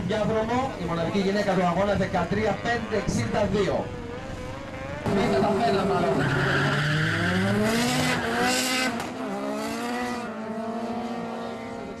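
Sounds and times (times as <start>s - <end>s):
car engines accelerating hard: 1.8s - 12.0s.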